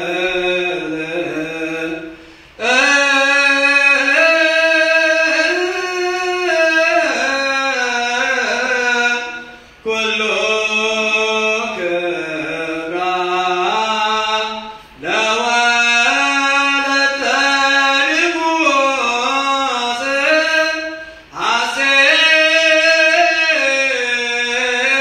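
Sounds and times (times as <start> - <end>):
solo voice chanting: 0.0 - 25.0.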